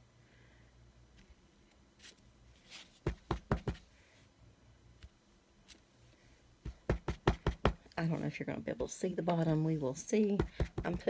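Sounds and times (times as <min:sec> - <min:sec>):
stamp block knocking on ink pad: 0:03.1 - 0:03.8, 0:06.6 - 0:07.8, 0:10.4 - 0:11.0.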